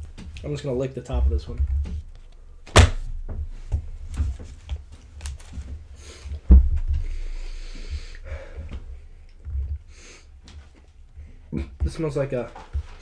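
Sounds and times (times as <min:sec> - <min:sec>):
sharp thump: 0:02.7 - 0:03.5, 0:06.5 - 0:07.1
person sniffing: 0:09.9 - 0:10.3.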